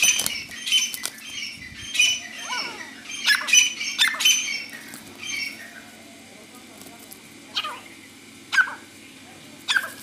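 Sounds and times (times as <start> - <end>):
wings flapping in a scuffle: 0.0 - 1.3, 4.6 - 5.6
harsh high-pitched bird calls: 0.0 - 6.1, 7.5 - 8.9.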